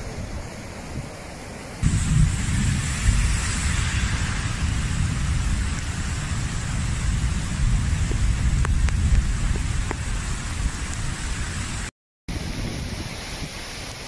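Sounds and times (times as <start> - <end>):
heavy rain: 0.0 - 14.0
deep rumble: 1.8 - 11.9.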